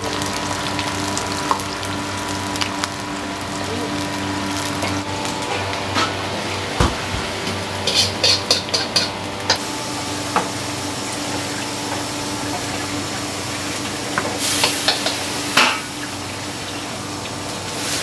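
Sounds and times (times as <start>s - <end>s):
pots and utensils clattering: 4.8s - 9.7s, 14.1s - 16.1s
cookware clinking: 7.9s - 9.2s.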